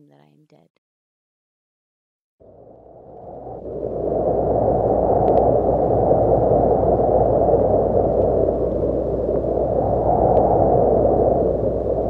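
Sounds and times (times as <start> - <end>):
low hum: 2.4 - 12.0
rushing noise drone: 2.5 - 12.0
faint clicks: 5.2 - 5.5.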